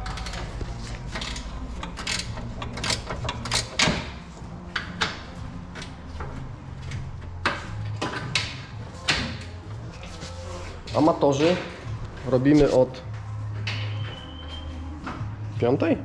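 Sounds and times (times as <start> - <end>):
metal tools clanking on car: 0.0 - 9.6, 11.0 - 12.4.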